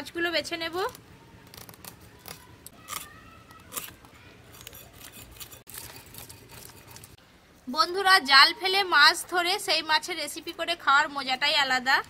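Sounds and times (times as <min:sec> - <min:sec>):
knife scraping fish scales: 0:01.6 - 0:07.2.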